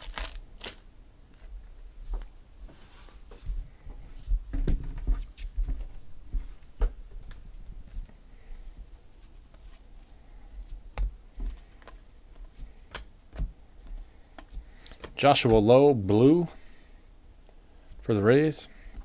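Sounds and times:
cards being shuffled by hand: 0.0s - 1.5s.

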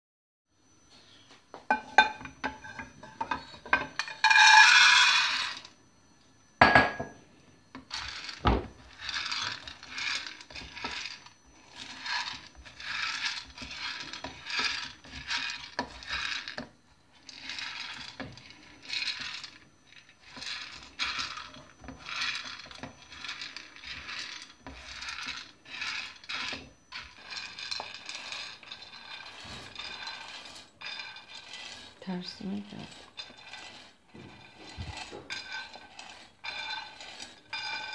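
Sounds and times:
berries rattling in a frying pan: 2.0s - 5.8s, 7.8s - 37.9s
spatula stirring in a pan: 7.8s - 37.9s.

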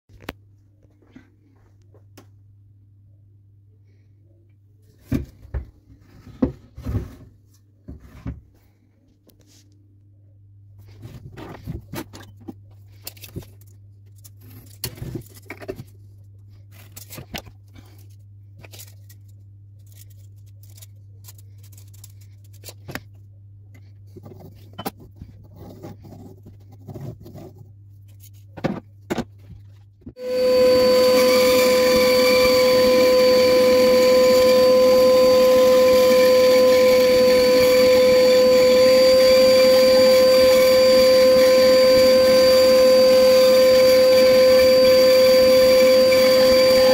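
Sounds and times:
band saw humming: 30.2s - 46.9s.

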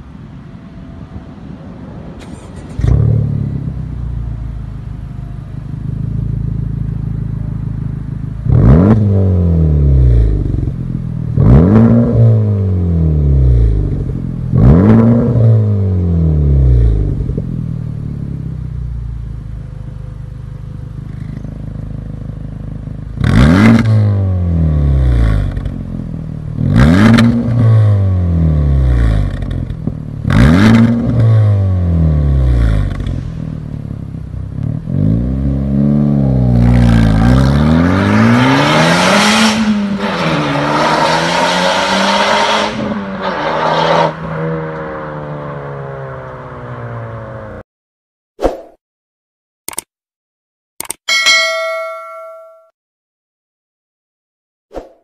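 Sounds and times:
car engine revving: 5.6s - 18.5s, 21.0s - 47.6s.

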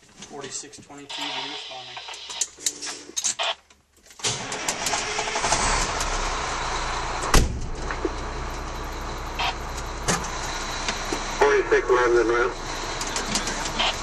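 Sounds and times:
truck engine starting and idling: 4.2s - 14.0s.

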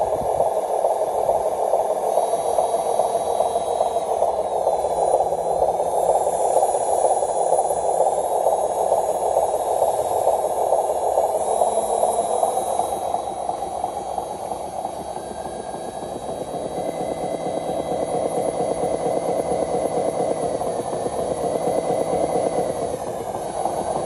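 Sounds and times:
faint high whine: 0.0s - 24.0s.

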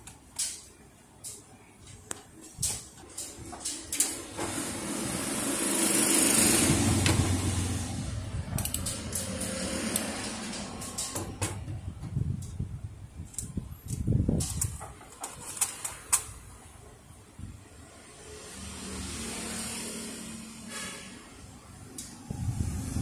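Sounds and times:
metal parts clicking and knocking: 0.0s - 4.4s, 8.6s - 11.8s, 13.2s - 16.4s.

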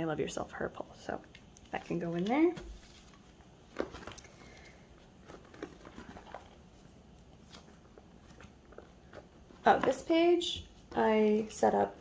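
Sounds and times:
plastic sleeves crinkling: 1.7s - 10.0s.

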